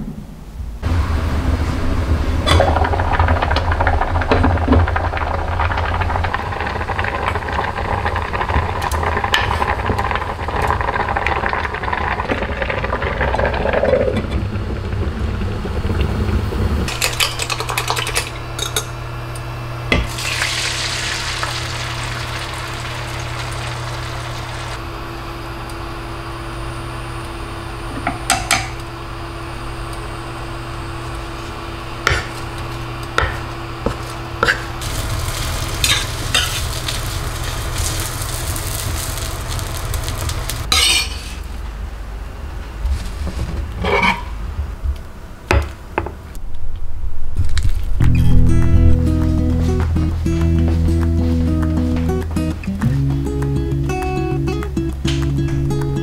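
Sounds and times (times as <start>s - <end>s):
steady hum: 0.0s - 56.0s
soup bubbling at a boil: 2.2s - 18.3s, 20.1s - 24.8s, 34.4s - 40.7s
egg sizzling in a pan: 2.4s - 18.6s, 20.0s - 24.8s, 33.9s - 41.3s.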